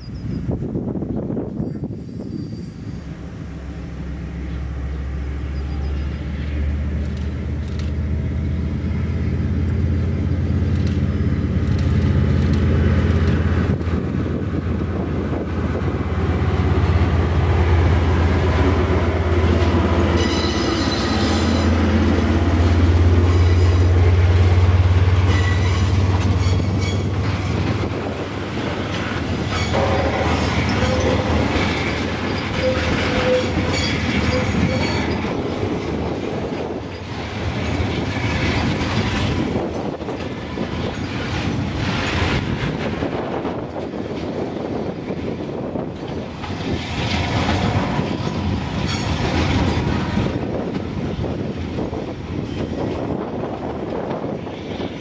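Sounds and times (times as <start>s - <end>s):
locomotive engine drone: 0.0s - 55.0s
freight wagons rumbling: 0.8s - 55.0s
high wheel squeals: 1.5s - 3.2s, 20.1s - 21.8s, 23.2s - 24.0s, 25.2s - 27.2s, 29.4s - 35.4s.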